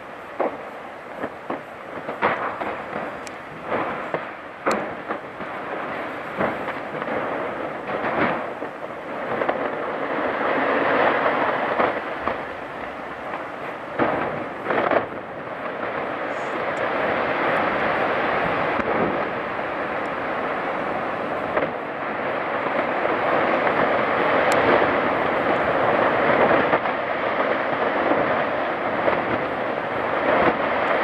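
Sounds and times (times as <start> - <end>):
ice cracking snaps and pops: 2.2 - 3.9, 4.6 - 5.2, 24.5 - 24.8.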